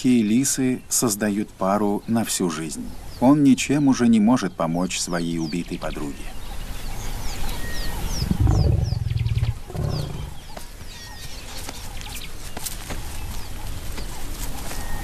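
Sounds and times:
small birds chirping: 0.0 - 15.0
lion growling low: 8.2 - 10.4.

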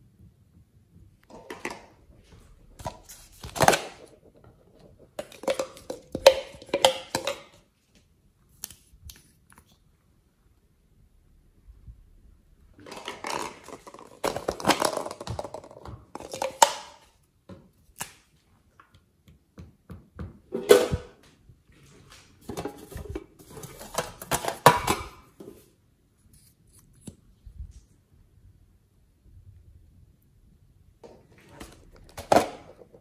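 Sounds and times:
plastic containers clacking: 1.2 - 7.6, 12.8 - 17.1, 22.4 - 25.6, 31.0 - 33.0.

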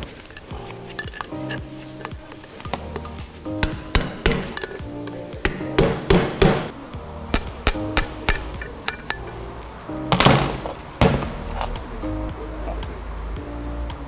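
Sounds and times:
hammer striking steel drift: 3.6 - 6.7, 7.3 - 9.4.

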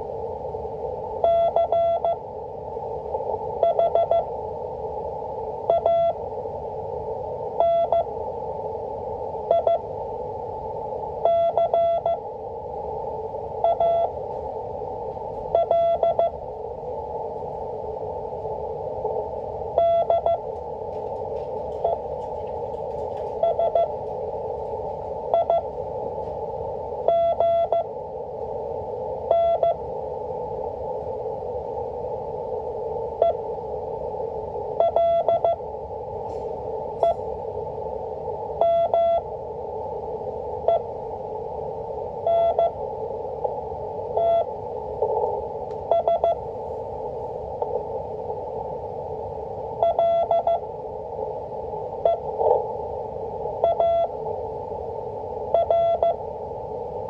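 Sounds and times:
receiver hiss: 0.0 - 57.0
morse code beeps: 1.2 - 2.2, 3.6 - 4.3, 5.7 - 6.2, 7.6 - 8.1, 9.5 - 9.8, 11.2 - 12.2, 13.6 - 14.1, 15.5 - 16.4, 19.8 - 20.4, 23.3 - 24.0, 25.3 - 25.7, 27.0 - 27.9, 29.3 - 29.8, 34.8 - 35.6, 38.6 - 39.2, 42.3 - 42.8, 44.2 - 44.5, 45.9 - 46.4, 49.8 - 50.6, 52.0 - 52.6, 53.6 - 54.2, 55.5 - 56.2.

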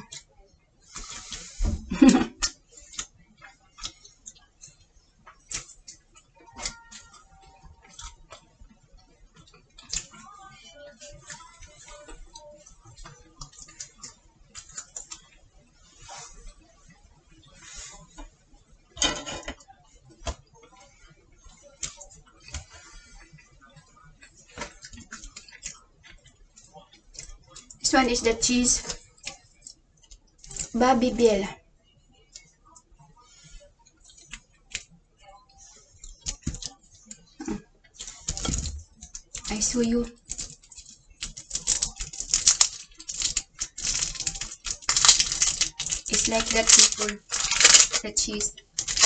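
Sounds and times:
wax coating crackling as peeled: 20.2 - 31.3, 35.6 - 49.0.

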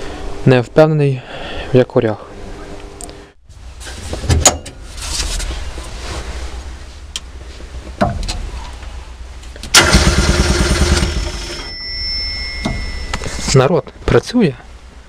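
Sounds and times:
starter motor cranking engine: 9.6 - 11.7.

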